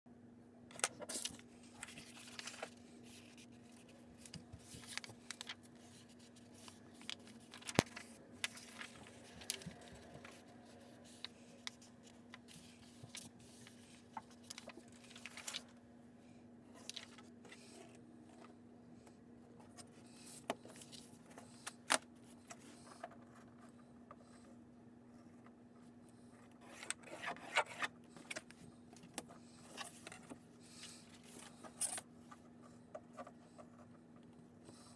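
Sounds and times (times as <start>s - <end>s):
paper rustling and scraping: 0.8s - 15.8s, 26.6s - 32.4s.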